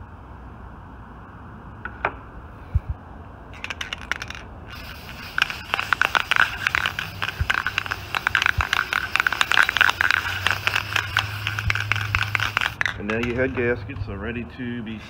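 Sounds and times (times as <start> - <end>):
aerosol can spraying hiss: 4.7 - 13.0.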